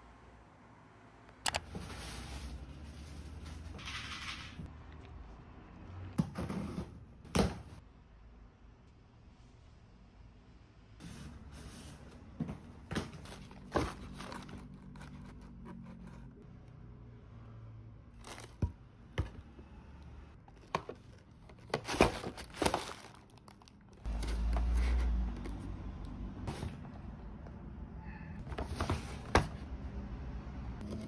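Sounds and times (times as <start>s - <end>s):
packaging crinkling and rustling: 13.1s - 15.6s, 18.2s - 18.7s, 20.4s - 24.8s.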